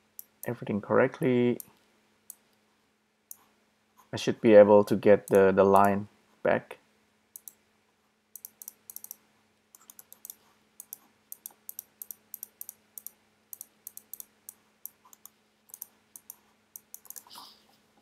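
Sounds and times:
faint electrical hum: 0.0s - 18.0s
keyboard and mouse clicks: 0.2s - 0.6s, 4.9s - 6.0s, 7.4s - 7.6s, 8.4s - 17.4s.

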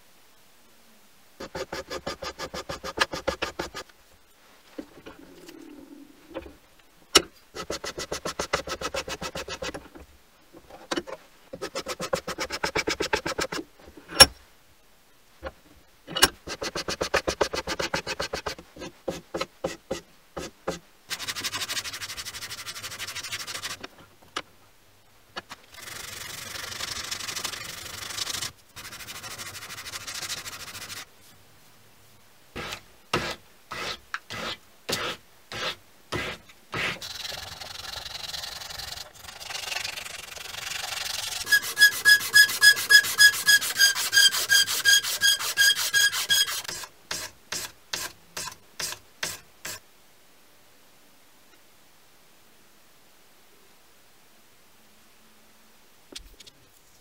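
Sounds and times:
wood filing and sanding: 1.4s - 3.9s, 7.6s - 9.8s, 11.6s - 13.7s, 16.4s - 23.9s, 25.8s - 31.1s, 32.6s - 49.8s.

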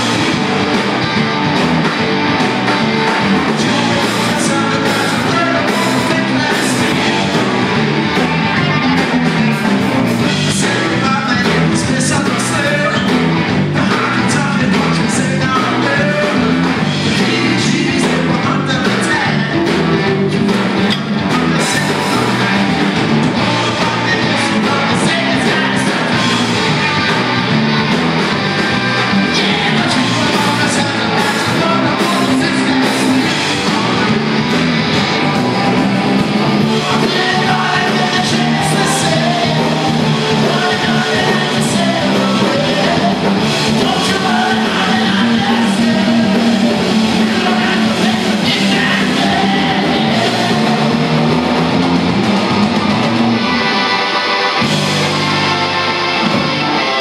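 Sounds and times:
drum kit: 0.0s - 57.0s
electric guitars: 0.0s - 57.0s.

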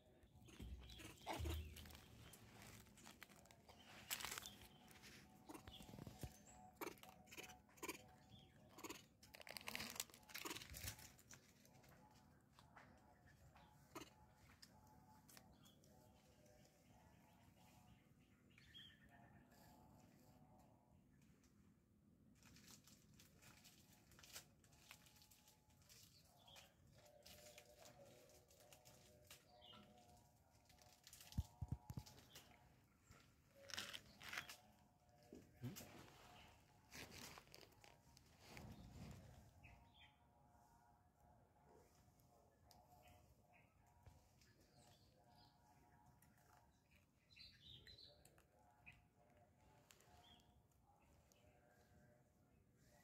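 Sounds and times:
monkey chewing food: 0.4s - 8.1s.

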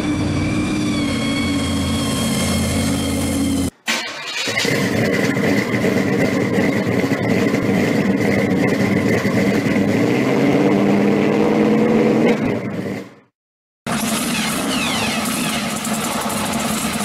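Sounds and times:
car engine running: 4.6s - 11.1s, 13.9s - 17.0s.

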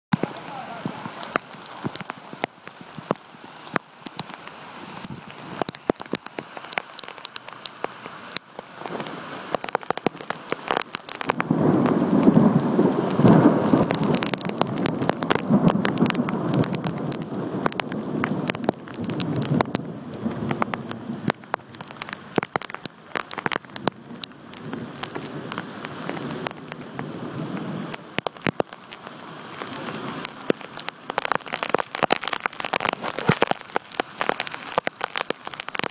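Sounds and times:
heavy rain: 0.1s - 35.9s
raindrops spattering close by: 0.1s - 35.9s
thunder rolling: 11.3s - 21.0s.

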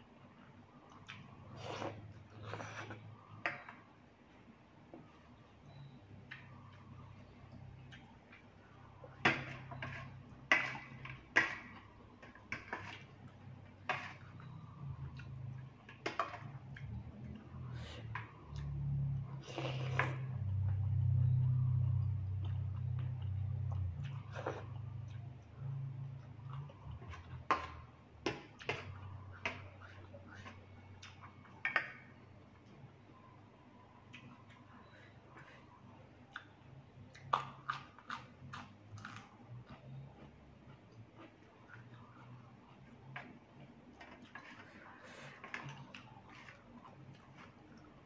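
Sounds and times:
low steady hum: 0.0s - 48.0s
person chewing noodles: 35.3s - 43.1s.

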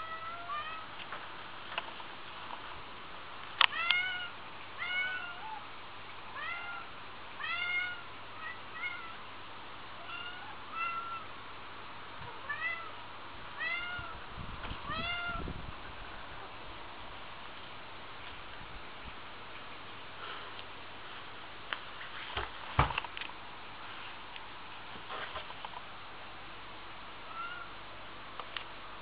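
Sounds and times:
cat meowing: 0.0s - 0.9s, 3.7s - 5.6s, 6.4s - 9.2s, 10.0s - 11.3s, 12.4s - 13.0s, 13.6s - 14.2s, 14.8s - 15.4s, 27.3s - 27.8s.

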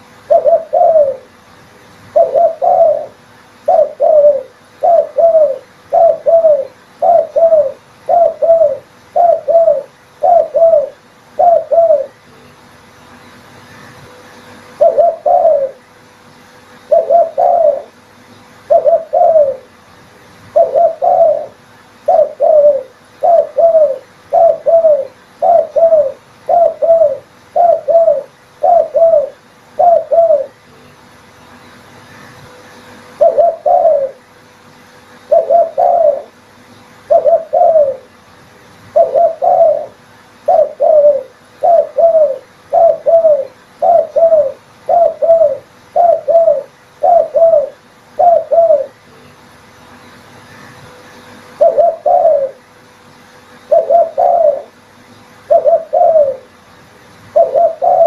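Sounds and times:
dove cooing: 0.0s - 1.4s, 2.0s - 12.2s, 14.7s - 15.9s, 16.8s - 18.0s, 18.6s - 19.8s, 20.5s - 30.6s, 33.1s - 34.3s, 35.2s - 36.4s, 37.0s - 38.2s, 38.9s - 49.0s, 51.6s - 52.7s, 53.6s - 54.8s, 55.4s - 56.6s, 57.3s - 58.0s.

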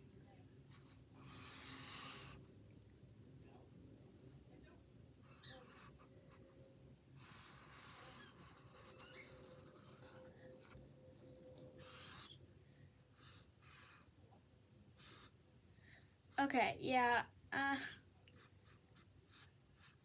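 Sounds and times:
drawing tool scratching on canvas: 7.2s - 10.8s, 11.6s - 12.4s, 18.4s - 20.0s.

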